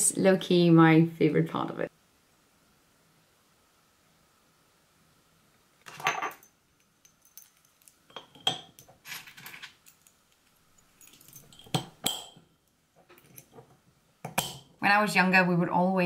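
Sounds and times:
glass lid clinking on jar: 0:08.1 - 0:08.9, 0:11.0 - 0:12.4.

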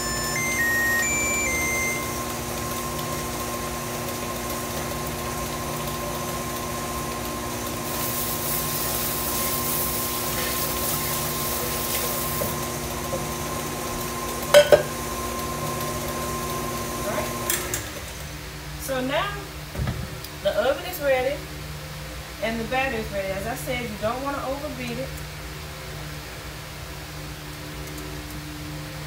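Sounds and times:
stand mixer motor running: 0:00.0 - 0:18.3
metal pan clanking on counter: 0:14.6 - 0:14.9.

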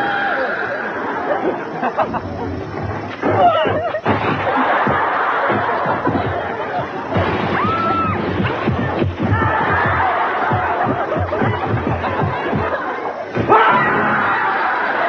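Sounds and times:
people laughing loudly: 0:00.0 - 0:15.0
high whoop: 0:07.6 - 0:08.2.

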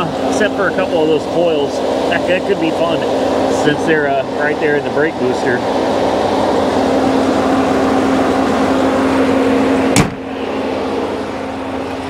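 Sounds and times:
steady hum: 0:00.0 - 0:12.0
truck engine idling: 0:00.0 - 0:12.0
loud thump: 0:09.9 - 0:10.3.

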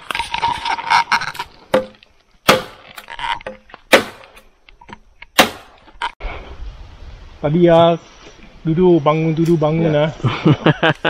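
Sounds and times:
machete chopping bamboo: 0:01.7 - 0:04.4, 0:05.4 - 0:05.8.

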